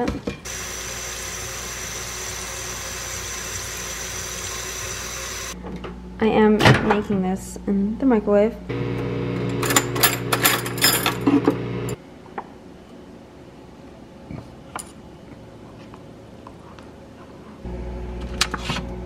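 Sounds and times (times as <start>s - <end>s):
microwave oven humming: 0.5s - 6.6s, 8.6s - 12.0s, 17.7s - 19.0s
cutlery rattling in a drawer: 9.6s - 11.3s.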